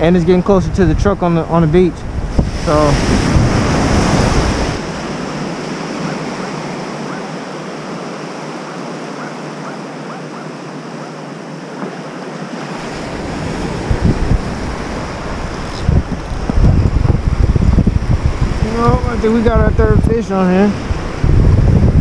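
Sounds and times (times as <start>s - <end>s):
wind on microphone: 0.0s - 7.6s, 12.6s - 22.0s
surf washing on beach: 0.0s - 22.0s.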